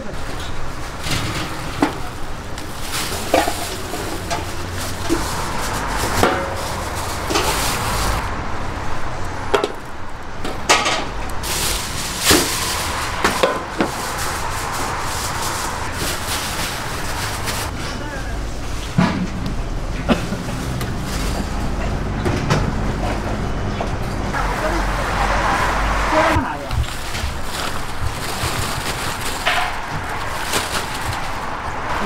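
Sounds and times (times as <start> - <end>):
metal trays and utensils clinking: 0.0 - 8.3, 9.5 - 18.0, 20.0 - 23.2, 26.4 - 32.0.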